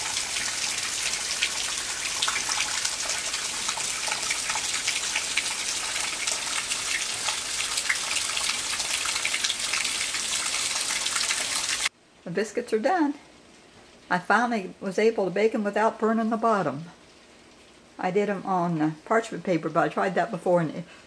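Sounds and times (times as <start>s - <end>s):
heavy rain falling: 0.0s - 11.9s.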